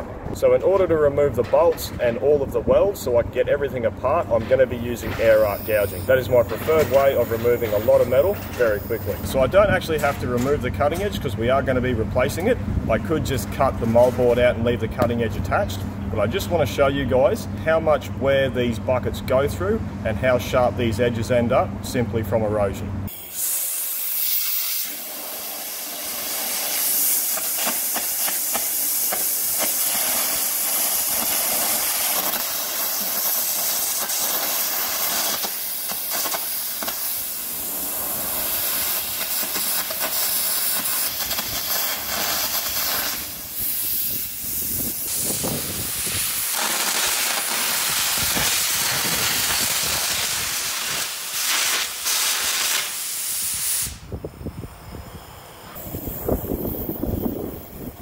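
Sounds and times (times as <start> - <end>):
air arc gouging hiss and crackle: 4.8 - 10.2, 23.1 - 58.0.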